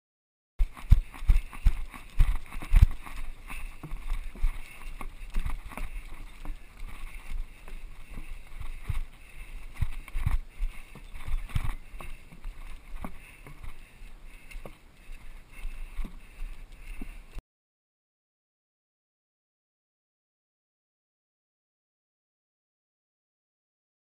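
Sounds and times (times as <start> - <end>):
steady rushing background: 0.6 - 17.4.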